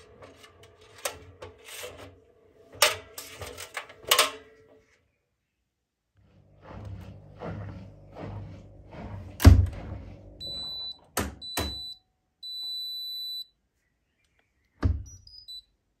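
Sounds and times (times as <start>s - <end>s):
washer dryer rustling and knocks: 9.4s - 10.0s
control panel beeps: 10.4s - 13.5s, 15.0s - 15.8s.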